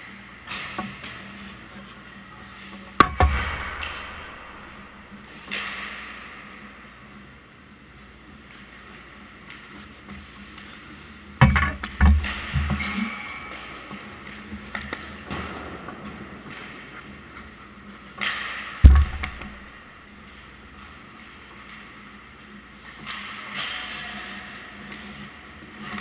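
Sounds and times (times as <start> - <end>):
goalie pads thumping goal: 3.0 - 5.2, 18.2 - 19.8.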